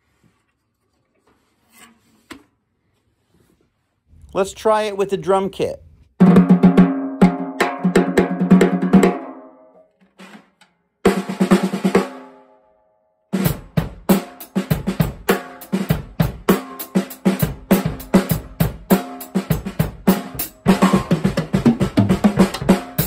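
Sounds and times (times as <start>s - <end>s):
drum kit beat: 6.2s - 9.4s, 11.1s - 12.3s, 13.3s - 23.0s
snare drum rolls: 13.4s - 23.0s.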